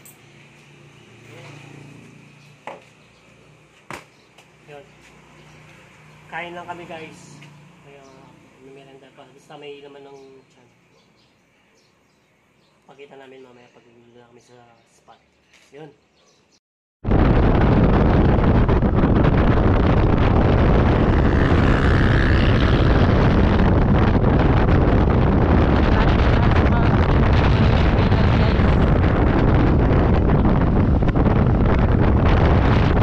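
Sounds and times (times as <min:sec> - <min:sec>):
wind buffeting microphone: 0:17.0 - 0:33.0.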